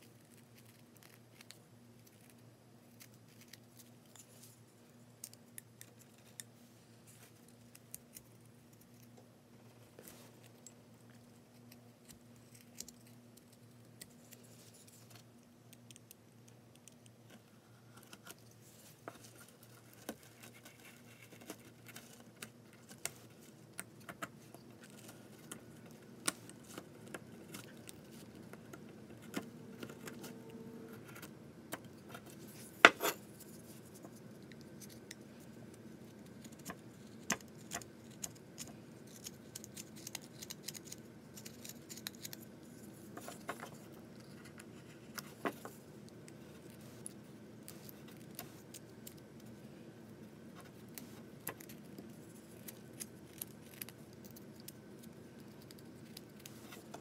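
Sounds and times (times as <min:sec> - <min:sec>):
knife carving wood: 0:36.2 - 0:42.5.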